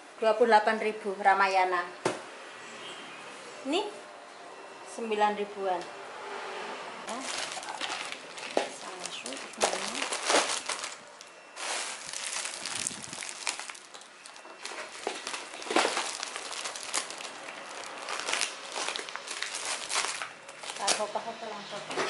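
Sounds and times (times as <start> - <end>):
plastic packaging crinkling: 7.1 - 21.2.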